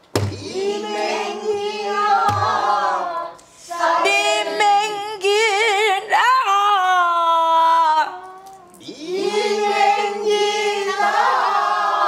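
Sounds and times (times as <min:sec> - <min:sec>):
barrel drum struck: 0:00.1 - 0:00.5, 0:02.2 - 0:02.6
woman singing with vibrato: 0:00.4 - 0:09.0.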